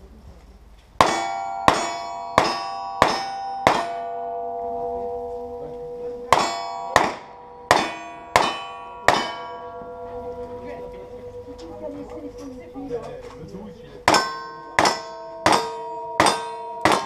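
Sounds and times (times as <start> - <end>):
steel plate ringing: 1.0 - 17.0.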